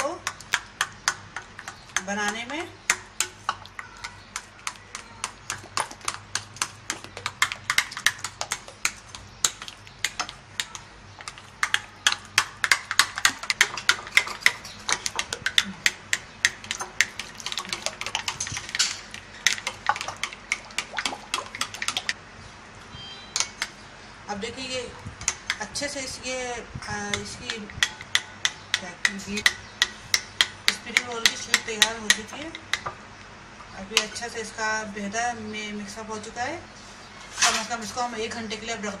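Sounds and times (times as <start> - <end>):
hands kneading dough: 0.0 - 22.2.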